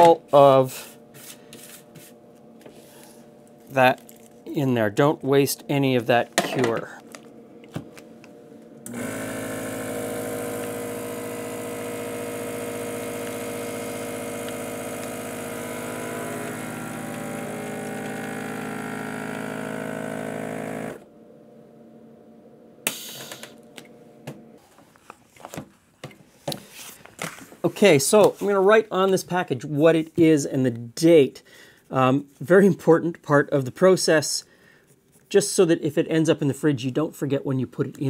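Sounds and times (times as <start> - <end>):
vacuum sealer pump humming: 5.2 - 24.8.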